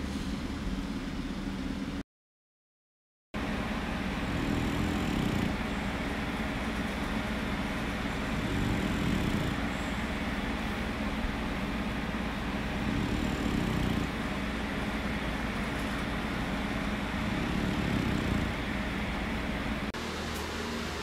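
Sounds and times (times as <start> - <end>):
dog snoring: 4.1 - 6.2, 7.8 - 10.2, 12.4 - 14.9, 15.9 - 19.0.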